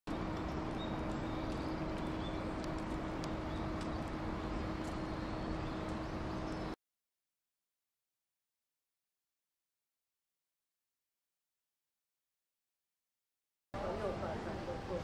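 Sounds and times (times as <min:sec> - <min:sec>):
constant low hum: 0:00.1 - 0:06.8, 0:13.8 - 0:15.0.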